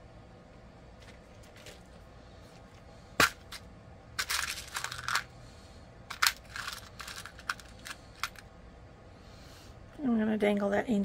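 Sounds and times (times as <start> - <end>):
crinkly rustling: 1.0 - 2.8.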